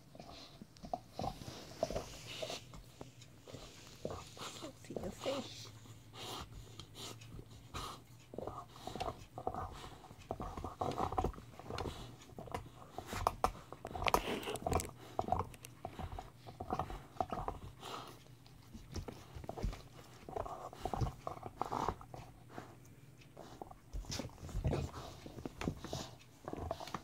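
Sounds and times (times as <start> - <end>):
dog chewing rubber toy: 0.0 - 27.0
teeth clicking on rubber: 6.4 - 22.4.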